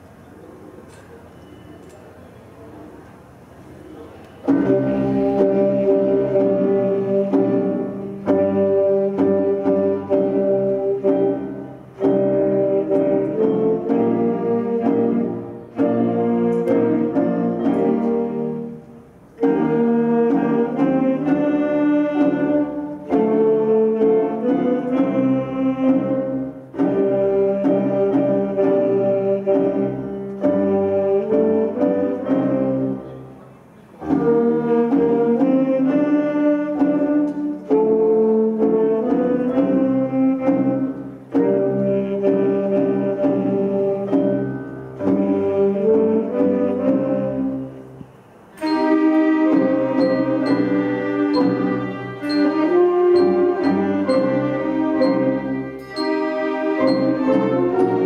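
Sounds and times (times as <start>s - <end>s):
wind band playing held chords: 2.7s - 58.0s.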